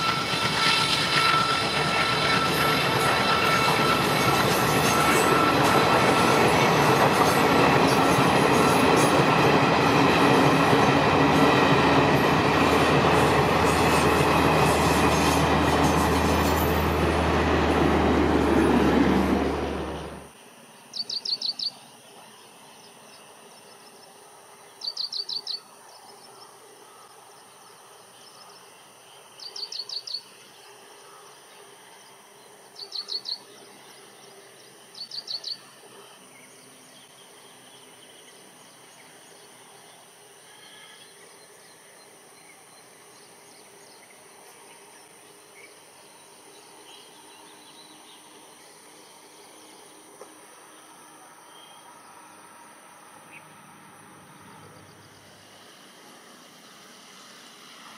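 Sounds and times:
diesel train passing: 0.0 - 20.7, 31.6 - 57.9
bird chirping calls: 20.9 - 21.9, 24.8 - 26.2, 29.4 - 30.4, 32.8 - 33.6, 34.8 - 35.7.

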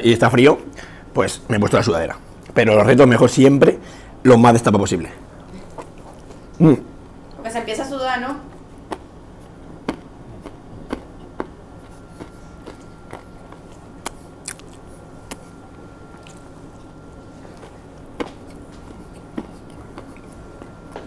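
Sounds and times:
person chewing food: 5.4 - 6.6, 8.6 - 21.0
mouth clicks and smacks: 9.8 - 15.5.

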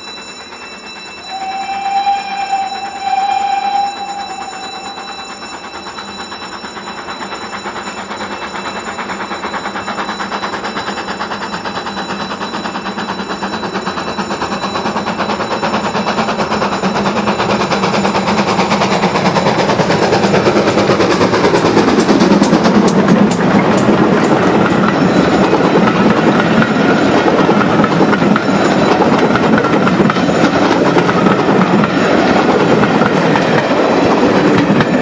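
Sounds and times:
steam locomotive exhaust beats: 0.0 - 35.0.

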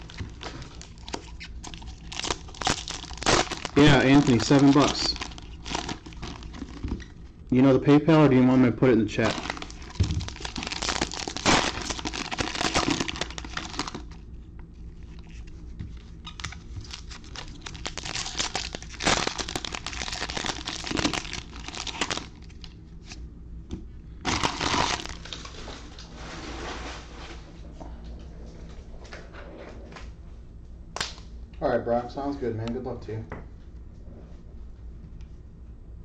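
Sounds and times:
plastic wrapper tearing and crinkling: 0.0 - 7.2, 9.2 - 14.2, 16.1 - 23.2, 24.2 - 25.8.

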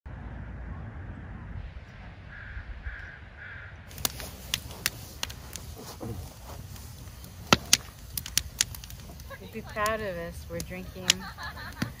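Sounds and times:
campfire crackling and popping: 3.9 - 12.0.

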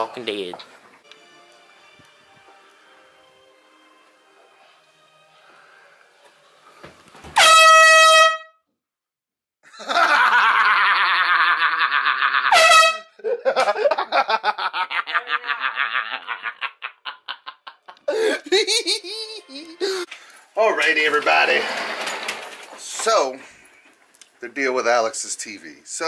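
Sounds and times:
air horn blasts: 7.3 - 8.6, 12.5 - 13.1
people laughing: 9.7 - 12.5, 13.2 - 20.0.

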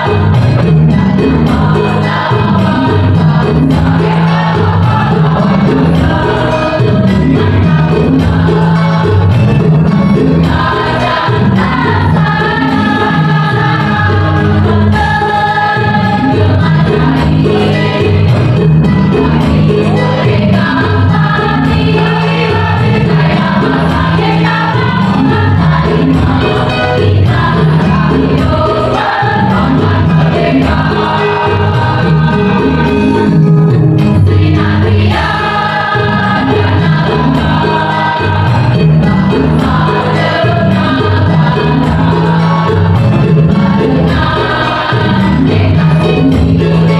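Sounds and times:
electronic keyboard: 0.0 - 46.9
mixed choir singing: 0.0 - 46.9.

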